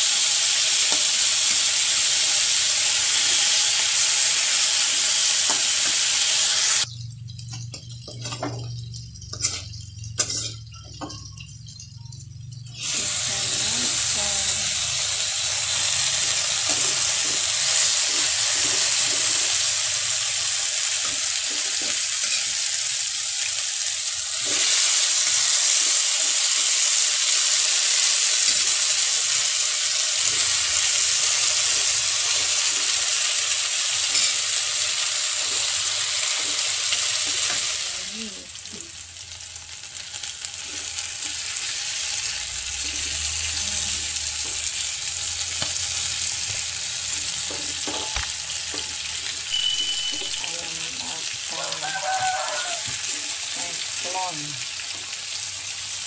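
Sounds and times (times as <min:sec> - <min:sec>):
chicken sizzling in grill pan: 0:00.0 - 0:56.0.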